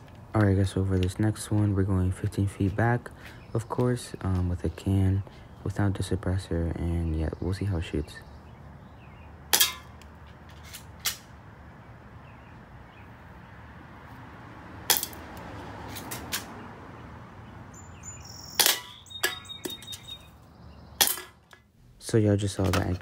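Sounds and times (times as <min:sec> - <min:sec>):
airsoft pistol shots: 0:09.5 - 0:09.9, 0:18.6 - 0:19.0.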